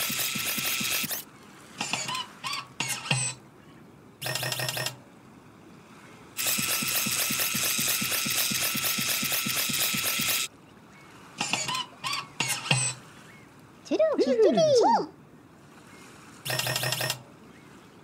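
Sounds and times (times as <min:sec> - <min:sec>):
toy robot whirring and ticking: 0:00.0 - 0:01.2, 0:06.4 - 0:10.5.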